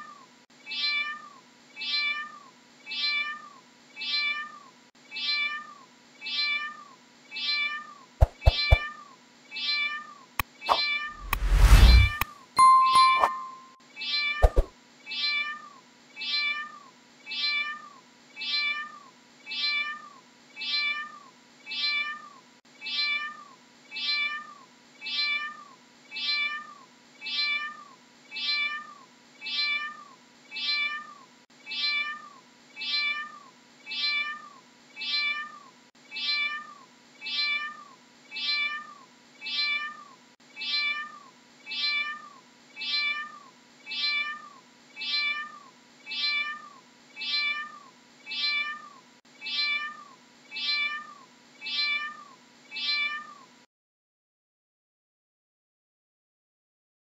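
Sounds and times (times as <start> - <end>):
single click: 11.2 - 12.3
short ding: 11.8 - 13.8
cat meowing: 30.6 - 53.5.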